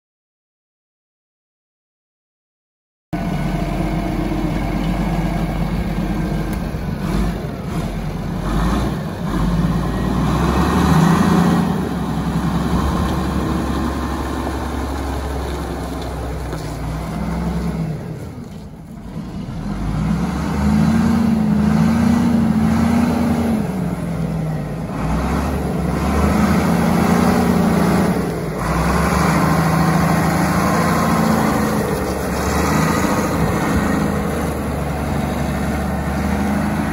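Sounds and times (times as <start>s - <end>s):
diesel loader engine revving: 3.2s - 36.9s.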